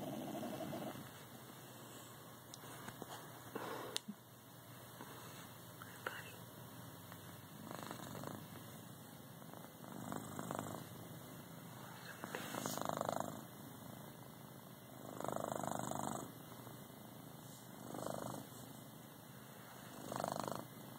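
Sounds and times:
cat snoring: 0:00.0 - 0:01.0, 0:07.6 - 0:08.5, 0:09.4 - 0:10.9, 0:11.8 - 0:14.0, 0:14.9 - 0:16.4, 0:17.6 - 0:18.8, 0:19.8 - 0:20.8.

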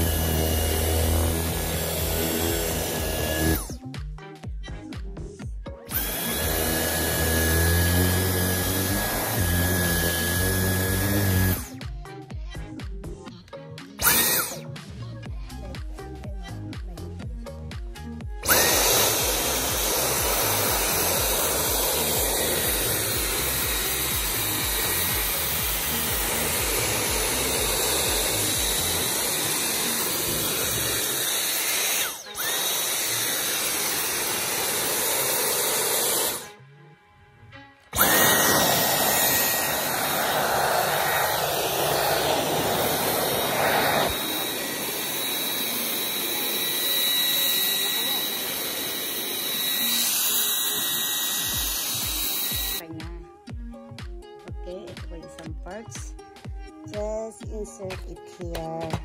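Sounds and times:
vacuum cleaner whine: 0:00.0 - 0:03.8, 0:05.9 - 0:11.8, 0:14.0 - 0:14.6, 0:18.4 - 0:36.6, 0:37.9 - 0:52.8.

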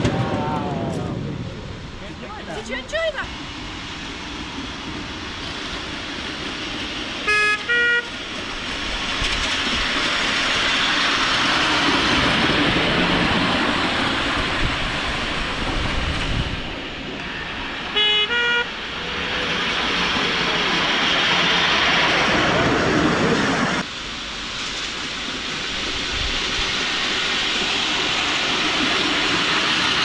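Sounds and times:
broad rushing noise: 0:00.0 - 0:30.0
train horn toots: 0:07.2 - 0:08.2, 0:17.9 - 0:18.9.

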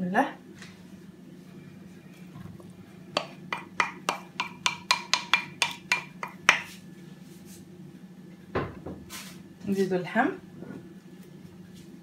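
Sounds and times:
wooden spoon tapping ceramic bowl: 0:03.2 - 0:06.7.

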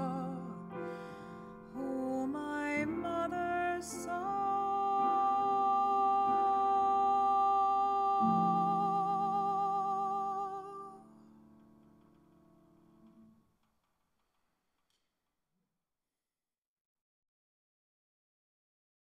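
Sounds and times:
woman singing: 0:00.0 - 0:01.0, 0:01.7 - 0:11.2
piano: 0:00.0 - 0:13.5.

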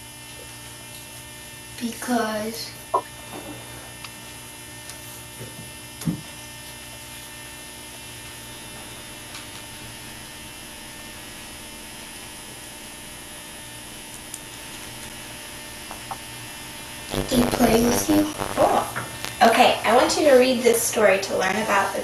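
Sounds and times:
electrical mains hum: 0:00.0 - 0:22.0.

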